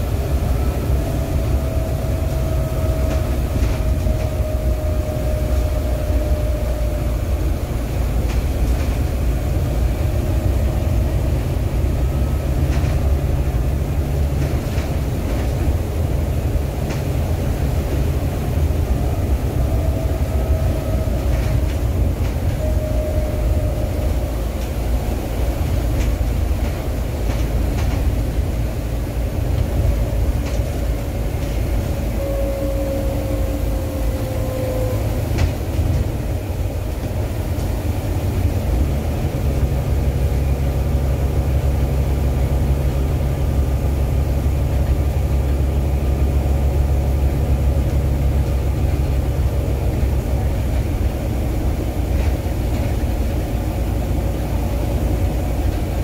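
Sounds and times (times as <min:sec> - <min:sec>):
faint whine: 0:00.0 - 0:13.8, 0:15.7 - 0:44.9
bus engine and road drone: 0:00.0 - 0:56.0.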